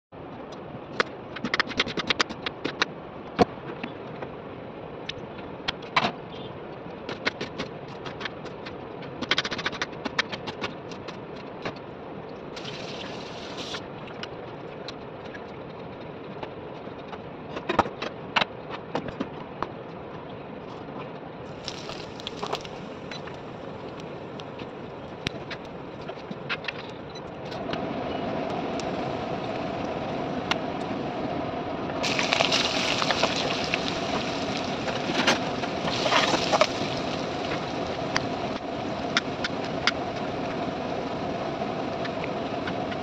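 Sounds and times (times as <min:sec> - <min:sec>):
oil hissing in a pan: 0:12.6 - 0:13.8, 0:21.5 - 0:24.0, 0:32.0 - 0:38.6.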